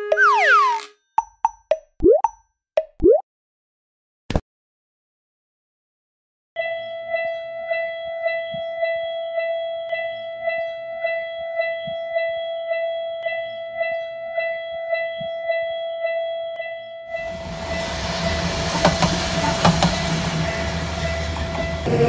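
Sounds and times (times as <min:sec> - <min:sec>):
railroad crossing bell dinging: 0:06.6 - 0:22.0.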